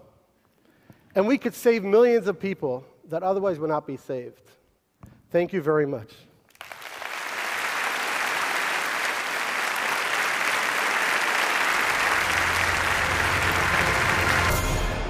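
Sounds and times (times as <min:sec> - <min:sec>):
audience applauding: 0:06.5 - 0:15.0.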